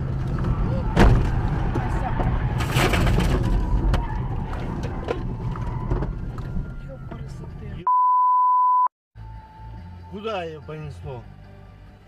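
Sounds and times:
road and engine noise inside car: 0.0s - 7.8s.

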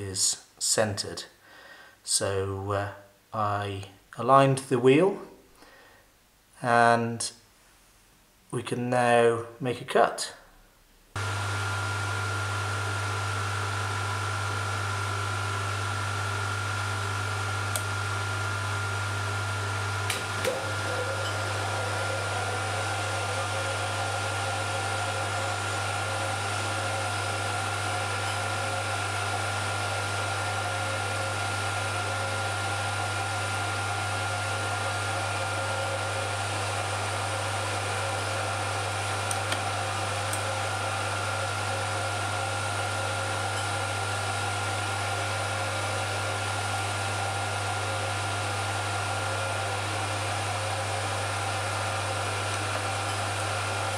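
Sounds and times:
lathe motor hum: 11.2s - 53.9s.

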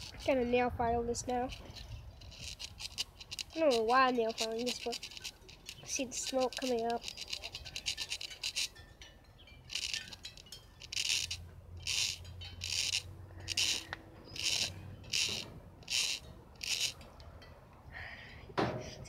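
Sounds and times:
nail file rasping on leather: 1.3s - 8.7s, 10.9s - 17.0s.

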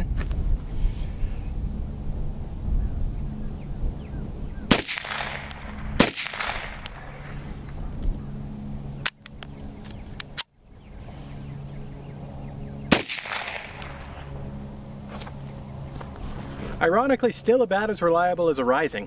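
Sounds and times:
pistol shots with echo: 4.7s - 7.4s, 12.9s - 14.2s.

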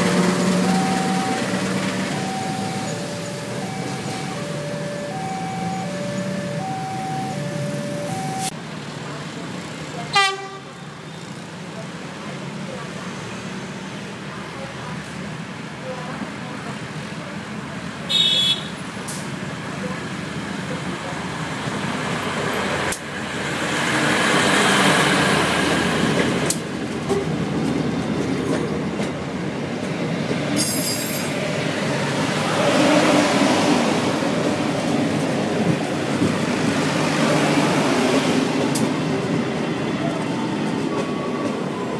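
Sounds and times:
train wheels rumbling on rails: 0.0s - 8.2s, 20.7s - 41.9s.

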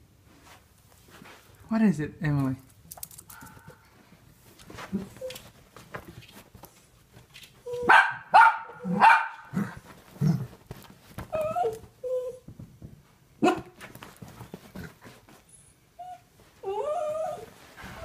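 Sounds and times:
dog whining: 4.9s - 5.5s, 7.6s - 7.9s, 11.3s - 12.5s, 15.5s - 18.0s
dogs barking: 7.9s - 9.6s.

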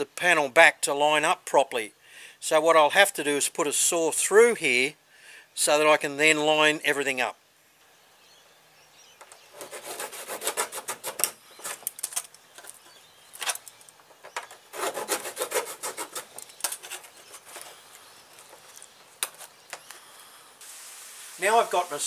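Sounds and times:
hand saw cutting fibreglass: 9.6s - 11.4s, 14.7s - 17.4s.

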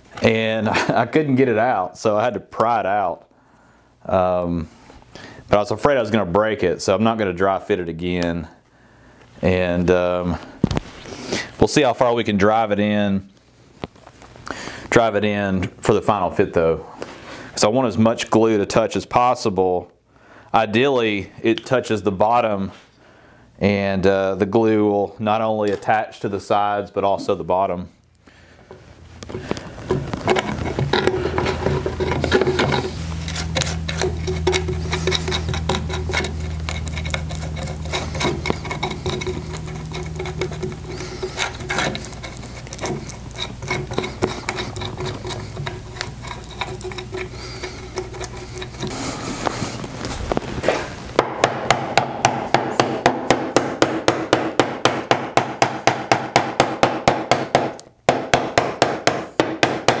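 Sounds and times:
scraping and rubbing: 28.7s - 51.2s
mallet striking wood: 51.2s - 60.0s.

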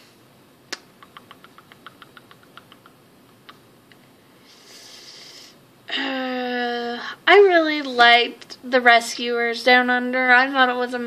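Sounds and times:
rapid light clicks: 0.8s - 4.0s.

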